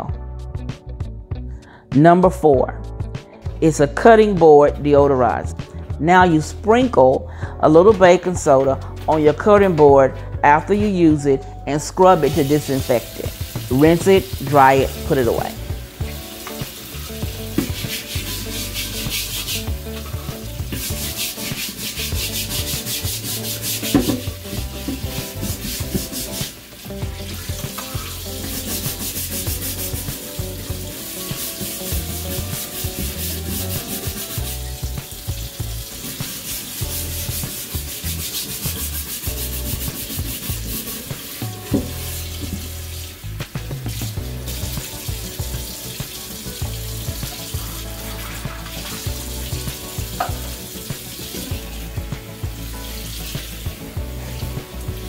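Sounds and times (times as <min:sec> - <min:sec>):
brush scrubbing cutting board: 0:12.2 - 0:15.3, 0:16.1 - 0:43.2, 0:44.5 - 0:54.6.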